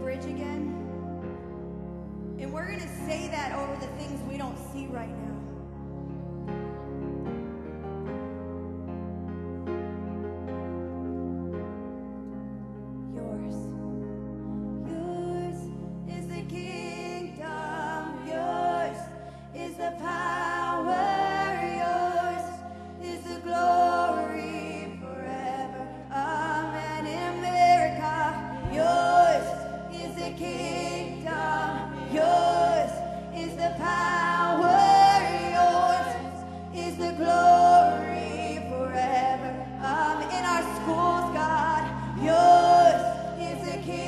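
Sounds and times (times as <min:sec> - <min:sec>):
held keyboard chords: 0:00.0 - 0:44.0
women singing worship song: 0:14.8 - 0:44.0.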